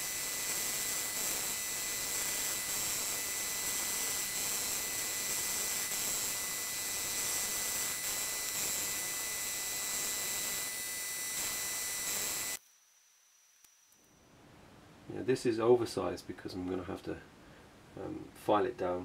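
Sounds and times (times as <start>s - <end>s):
milling machine cutting metal: 0.0s - 12.6s.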